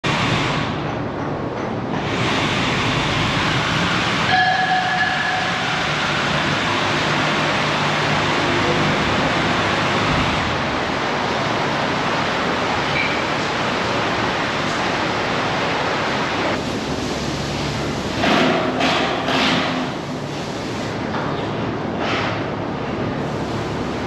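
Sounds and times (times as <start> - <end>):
machinery running: 0.0 - 24.0.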